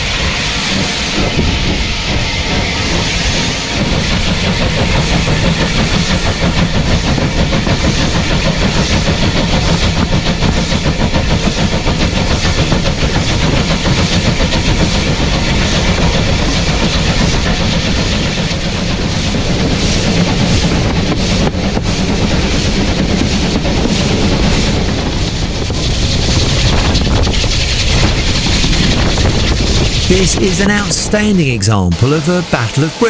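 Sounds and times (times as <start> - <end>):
train wheels clattering over rails: 0.0 - 30.1
steam locomotive working: 0.0 - 33.0.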